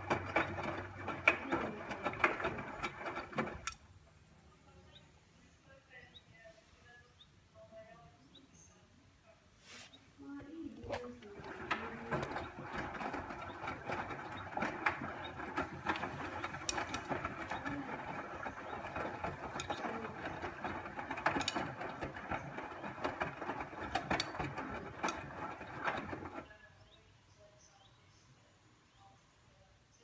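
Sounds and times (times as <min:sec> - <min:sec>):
mechanical rattling and clicking: 0:00.0 - 0:03.9, 0:10.8 - 0:26.5.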